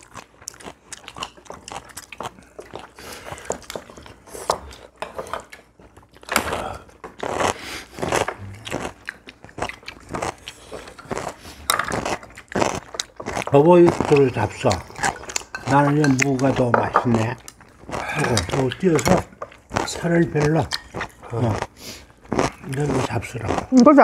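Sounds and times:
people chewing and biting: 0:00.0 - 0:24.0
chopsticks and spoons clicking on bowls: 0:13.4 - 0:19.6.

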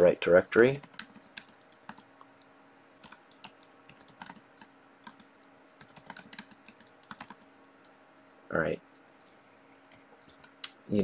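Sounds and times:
faint keyboard keystrokes: 0:03.0 - 0:08.0.

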